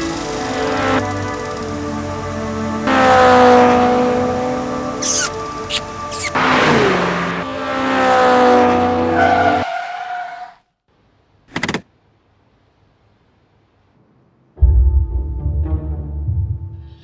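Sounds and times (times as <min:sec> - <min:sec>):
tyres screeching: 0:05.0 - 0:06.4
dramatic music: 0:14.6 - 0:17.0.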